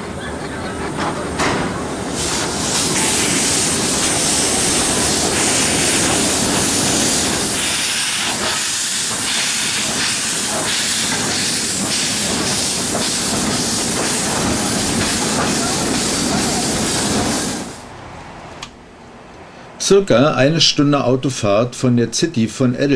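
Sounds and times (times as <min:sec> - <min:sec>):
steam locomotive hissing: 0:01.6 - 0:17.9.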